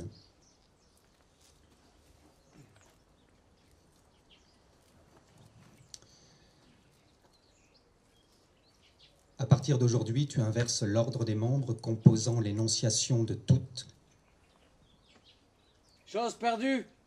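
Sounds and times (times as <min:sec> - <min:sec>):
faint bird chirps: 0:00.0 - 0:09.6.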